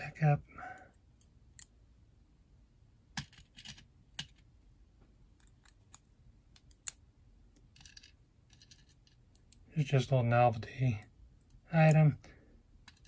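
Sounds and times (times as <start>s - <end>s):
small metallic clicks of lock pins: 11.0s - 12.2s.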